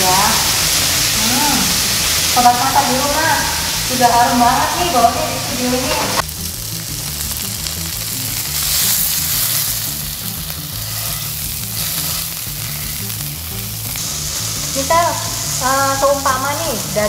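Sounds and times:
steak sizzling in a frying pan: 0.0s - 17.0s
tongs pressing meat against pan: 7.3s - 16.6s.

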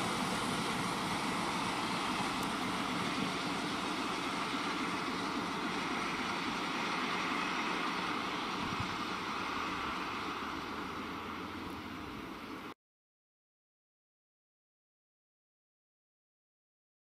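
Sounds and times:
distant diesel locomotive drone: 0.0s - 12.8s.

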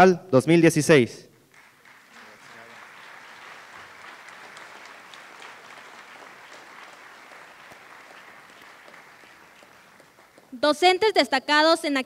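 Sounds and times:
audience applause: 1.5s - 10.6s.

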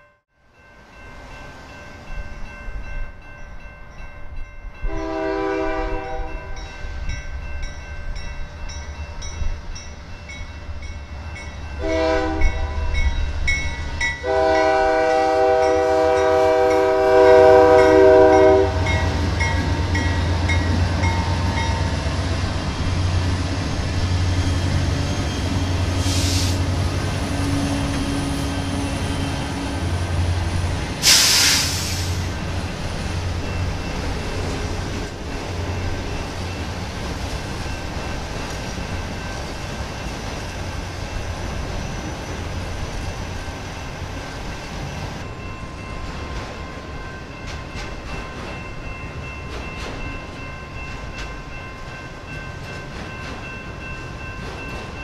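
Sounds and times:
crossing bell ringing: 0.0s - 31.2s, 32.1s - 55.0s
train cars rolling by: 0.6s - 55.0s
locomotive air horn blasts: 4.9s - 6.6s, 11.8s - 13.0s, 14.2s - 19.1s, 26.0s - 26.7s, 31.0s - 32.3s
high hissing bursts: 26.0s - 26.8s, 30.9s - 32.4s.

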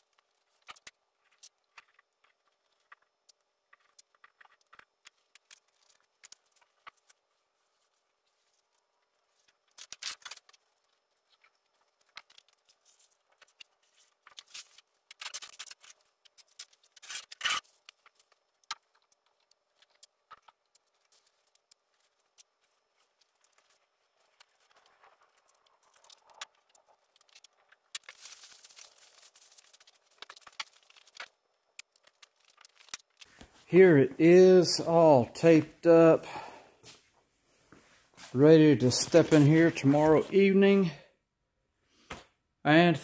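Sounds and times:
paper rustling: 3.7s - 33.7s
masking tape tearing: 9.7s - 10.6s, 14.3s - 19.0s, 27.2s - 31.3s.

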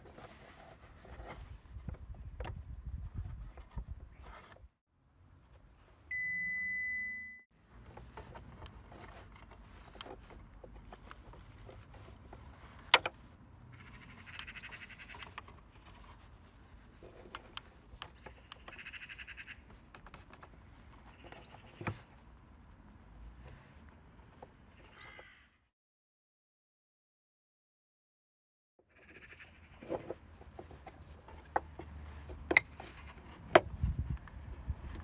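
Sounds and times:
birds calling in trills: 13.7s - 15.3s, 24.8s - 25.6s.

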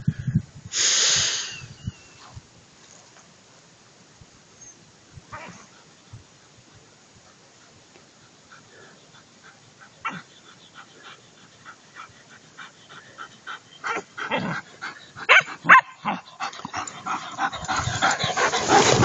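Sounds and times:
dogs barking and yipping: 8.7s - 19.0s.

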